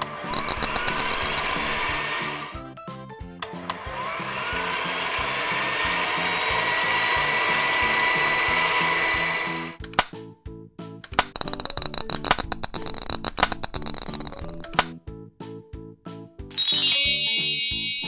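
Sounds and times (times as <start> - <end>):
whirring machine with rising whine: 3.9 - 9.8
clicks: 11.0 - 14.9.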